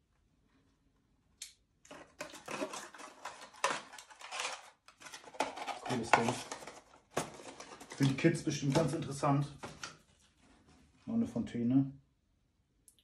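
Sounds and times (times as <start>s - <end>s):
cardboard packaging rustling: 1.9s - 10.9s.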